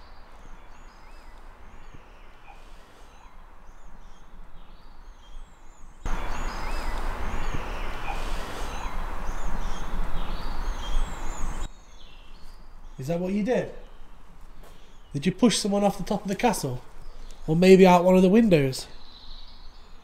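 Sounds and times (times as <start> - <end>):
outdoor background hiss: 0.0 - 20.0
small birds chirping: 0.0 - 20.0.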